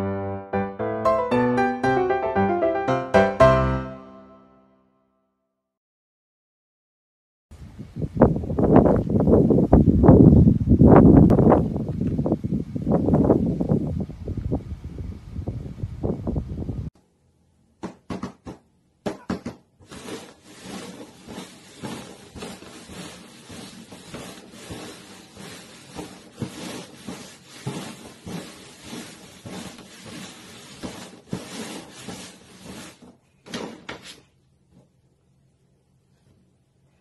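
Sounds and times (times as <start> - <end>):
plastic cups scraping on cardboard: 19.8 - 34.3.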